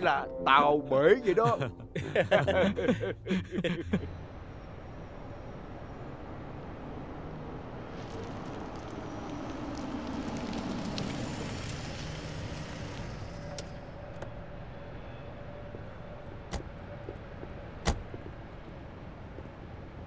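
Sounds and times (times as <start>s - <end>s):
low steady hum: 0.0s - 9.3s
car driving up and stopping: 2.4s - 20.0s
car door opening and shutting: 16.5s - 16.8s, 17.8s - 18.5s.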